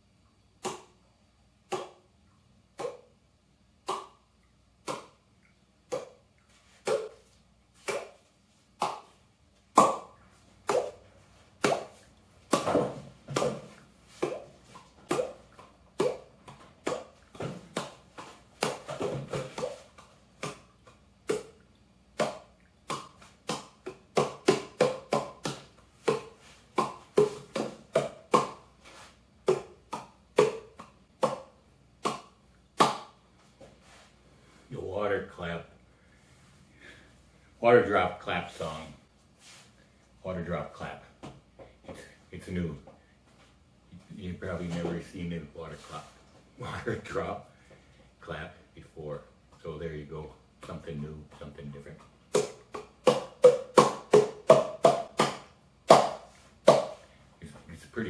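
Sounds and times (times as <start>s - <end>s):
cupped-hand claps: 52.4s - 57.0s.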